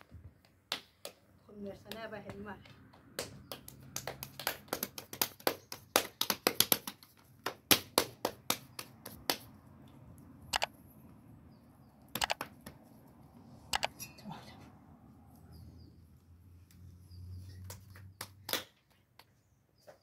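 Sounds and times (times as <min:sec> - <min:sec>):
hands slapping bread dough: 0:00.3 - 0:09.5, 0:17.6 - 0:19.3.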